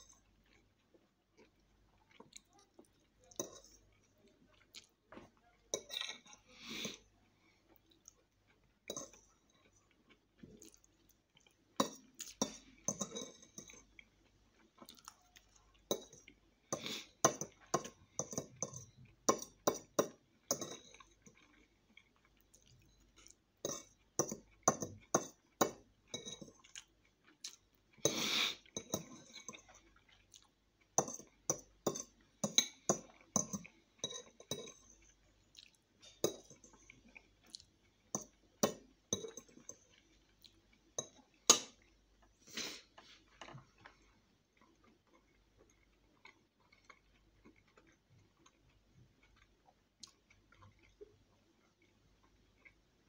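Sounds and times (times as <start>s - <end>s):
chewing and slurping: 0.0s - 53.0s
fork clinking on a plate: 3.4s - 3.8s, 11.8s - 13.8s, 17.3s - 21.0s, 23.6s - 26.6s, 31.0s - 35.0s.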